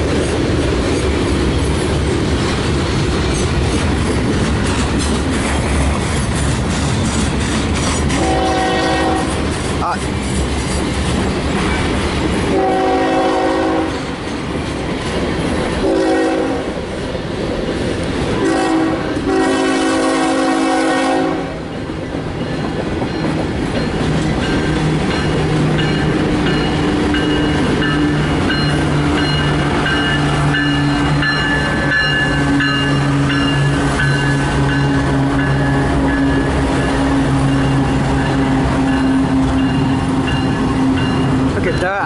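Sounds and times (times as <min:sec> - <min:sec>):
train wheels clacking over rail joints: 0:00.0 - 0:16.0, 0:21.6 - 0:42.0
locomotive air horn blasts: 0:08.1 - 0:09.4, 0:12.5 - 0:14.1, 0:15.8 - 0:16.7, 0:18.4 - 0:21.6.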